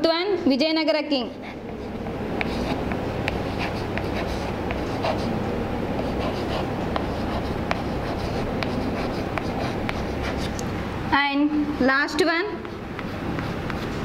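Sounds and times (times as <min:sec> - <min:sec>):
steady background noise: 0:00.0 - 0:14.0
chalk tapping and scratching on blackboard: 0:01.2 - 0:05.4, 0:06.0 - 0:10.6, 0:12.4 - 0:14.0.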